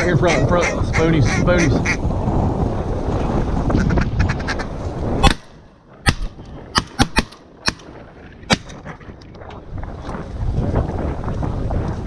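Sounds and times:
duck quacks: 0.0 - 2.0, 3.8 - 5.4
wind buffeting microphone: 0.0 - 12.0.

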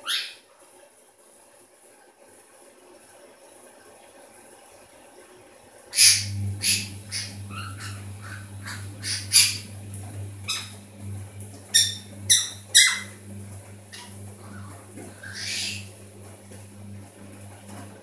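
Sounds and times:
parrot squawks and chirps: 0.0 - 0.4, 5.9 - 9.6, 10.5 - 10.8, 11.7 - 13.2, 13.9 - 15.9
steady low hum: 6.0 - 18.0.

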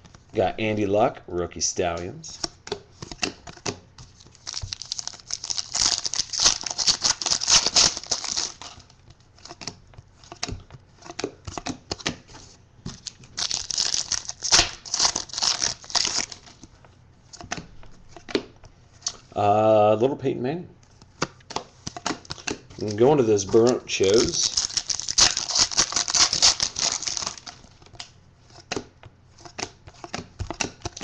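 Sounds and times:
wrapper tearing and crinkling: 4.3 - 8.9, 13.0 - 16.5, 22.8 - 27.7
cards clicking and sliding: 21.0 - 24.5, 25.2 - 31.0.

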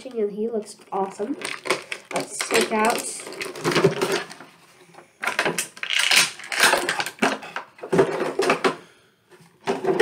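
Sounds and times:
plastic packaging crinkling: 0.0 - 4.5, 5.2 - 7.3.

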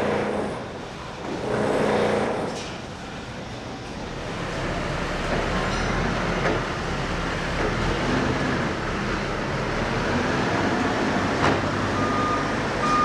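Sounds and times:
heavy machinery rumble and clatter: 0.0 - 13.0.

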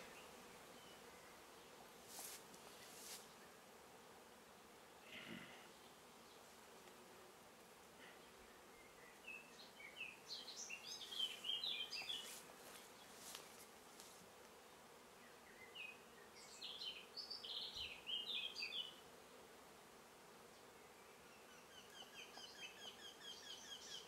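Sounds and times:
songbird singing: 8.2 - 13.5, 15.2 - 19.0, 20.6 - 24.0.

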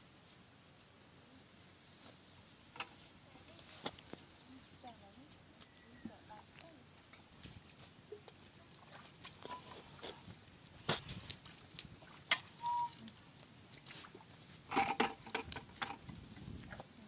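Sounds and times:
footsteps in mud: 6.2 - 14.7.

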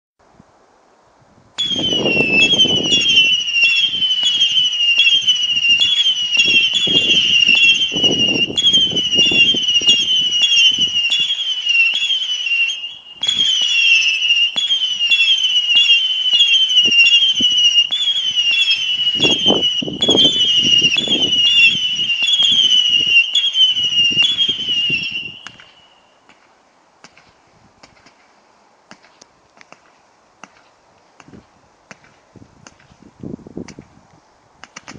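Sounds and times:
firework whistles: 1.6 - 26.2.

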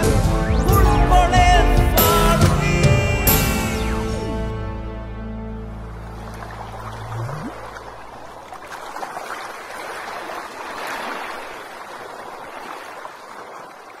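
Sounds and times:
song note sliding upward: 3.3 - 5.9
water rushing and lapping: 5.6 - 14.0.

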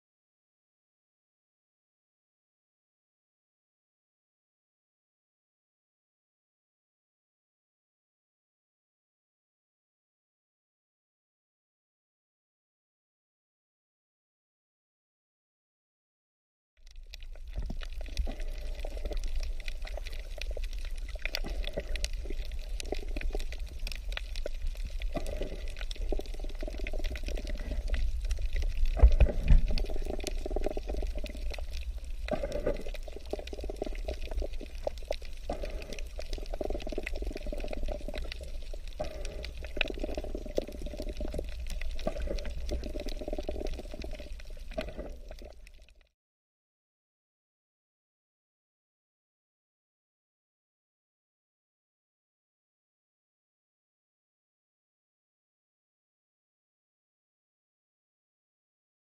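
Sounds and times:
deep underwater rumble: 16.8 - 46.0
underwater sloshing and bubbling: 16.8 - 46.1.

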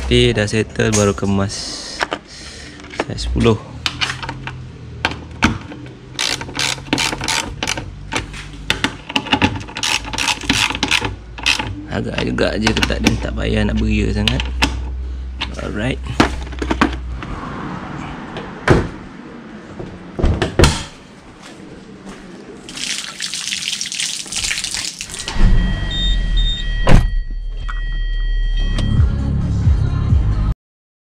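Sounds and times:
tap water running over hands: 22.7 - 25.2
short electronic beeps: 25.1 - 29.1.

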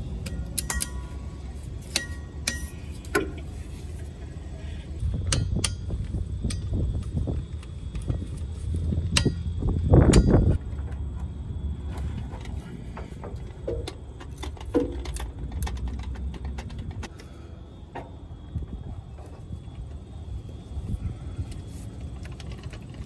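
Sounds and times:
steady low rumble: 0.0 - 23.0
metal wrench clinking: 0.2 - 1.2.

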